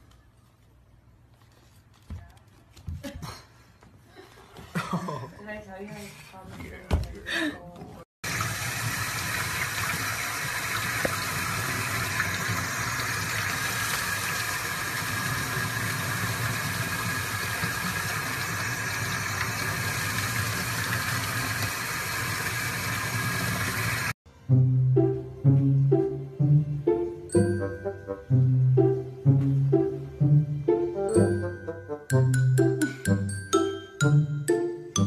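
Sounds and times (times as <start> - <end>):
faucet water splashing into sink: 8.2 - 24.2.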